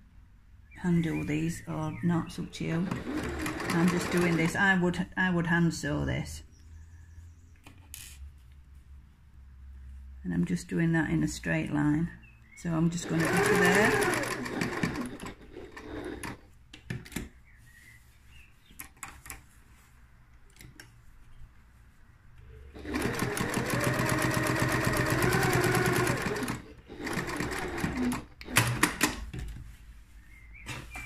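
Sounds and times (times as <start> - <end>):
sewing machine running: 2.8 - 4.6, 13.0 - 16.4, 22.8 - 29.0.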